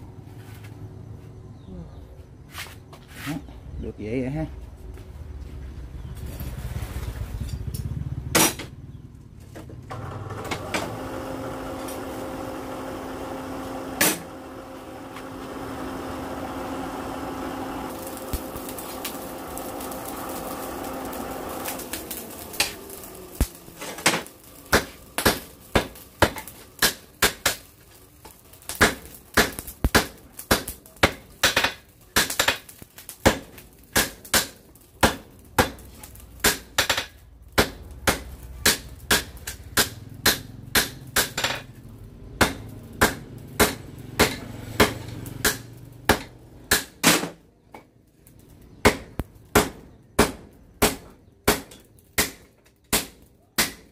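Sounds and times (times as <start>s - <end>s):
forge blower hum: 9.5s - 47.2s
hammer striking hot metal on anvil: 22.5s - 27.6s, 28.7s - 41.7s, 42.4s - 47.3s, 48.8s - 53.9s.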